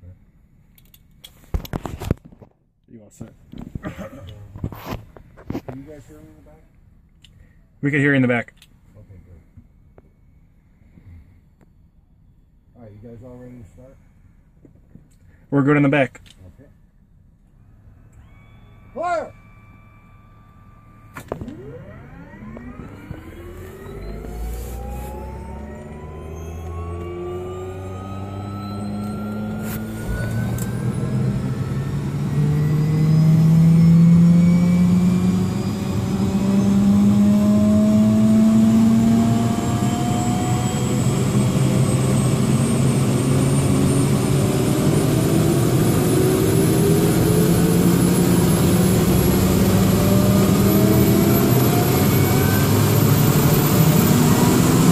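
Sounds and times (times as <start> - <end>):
helicopter turbine engine whine: 17.6 - 54.9.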